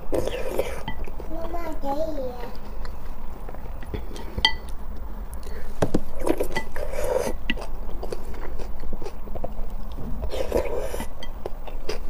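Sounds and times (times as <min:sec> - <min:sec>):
chopsticks clinking against glass bowl: 0:04.2 - 0:04.7.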